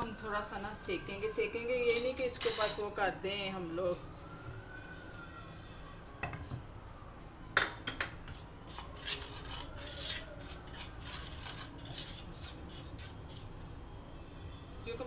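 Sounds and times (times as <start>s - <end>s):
spatula scraping seeds in pan: 8.3s - 15.0s.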